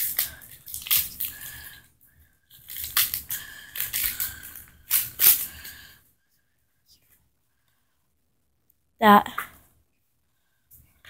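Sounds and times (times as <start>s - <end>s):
foil wrapper crinkling and tearing: 0.0s - 1.8s, 2.6s - 5.7s.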